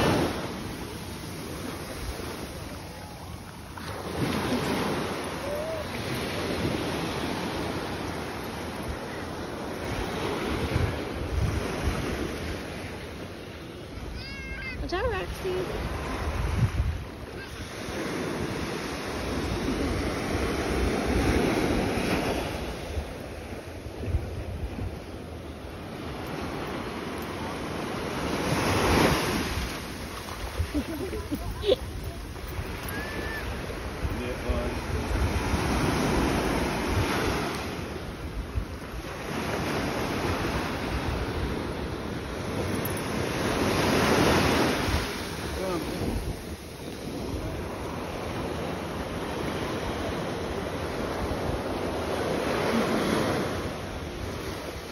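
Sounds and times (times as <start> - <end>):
small waves breaking on sand: 0.0 - 54.9
wind rumble on microphone: 15.8 - 17.3.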